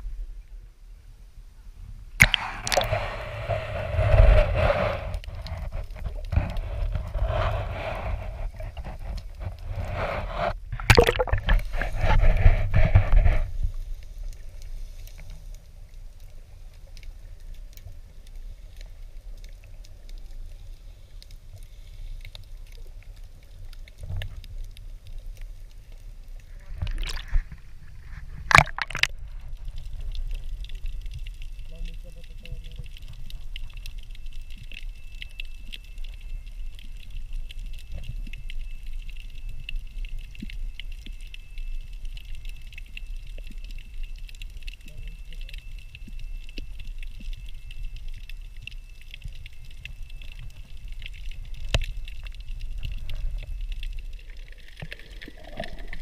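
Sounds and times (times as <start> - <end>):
muffled underwater rumble: 0.0 - 56.0
water sloshing and splashing: 2.2 - 3.1, 5.4 - 13.4, 26.5 - 30.1.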